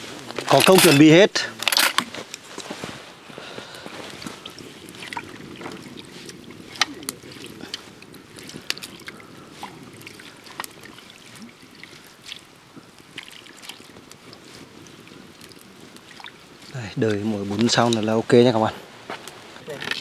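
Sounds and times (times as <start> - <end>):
water bubbling in pot: 3.8 - 18.1.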